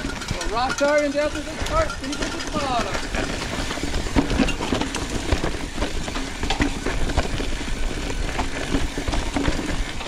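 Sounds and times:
bike clattering and rattling: 0.0 - 10.0
bike tyres rumbling on dirt: 0.0 - 10.0.

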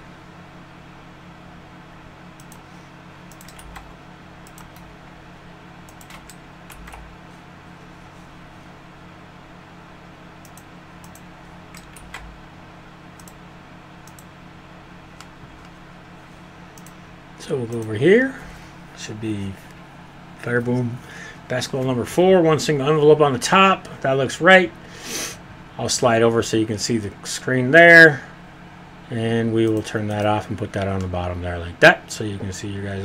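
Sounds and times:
steady low hum: 0.0 - 33.0
keyboard key presses: 5.9 - 7.1.

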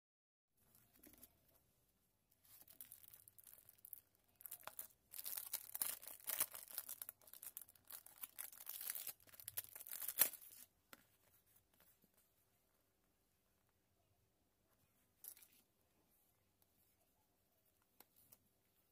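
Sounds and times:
plastic packaging crinkling and tearing: 2.5 - 10.7.

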